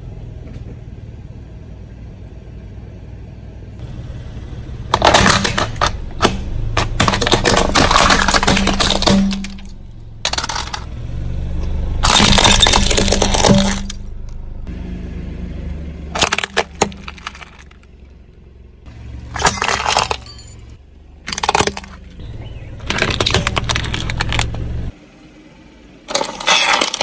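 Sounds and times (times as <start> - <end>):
car engine running low: 0.0 - 27.0
car tyre crushing brittle objects: 4.6 - 14.7, 16.0 - 24.9, 26.1 - 27.0.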